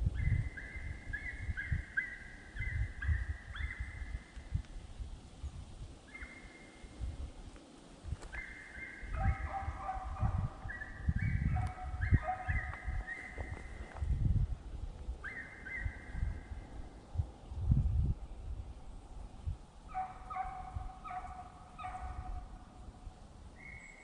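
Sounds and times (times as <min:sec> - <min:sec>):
hunting dogs baying: 0:08.4 - 0:10.9, 0:11.5 - 0:13.5, 0:19.9 - 0:22.4.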